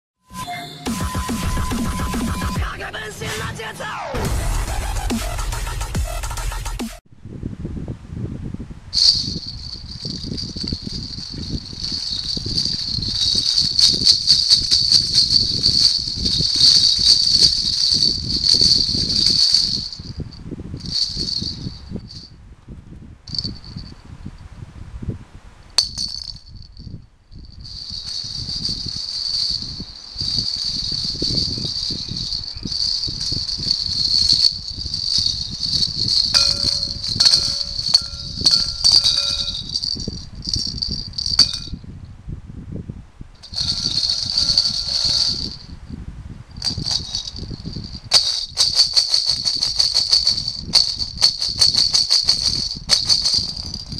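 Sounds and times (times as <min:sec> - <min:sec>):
jingle balls jingling and rattling: 0:09.0 - 0:22.3, 0:23.3 - 0:23.9, 0:25.8 - 0:41.8, 0:43.4 - 0:45.7, 0:46.6 - 0:53.9.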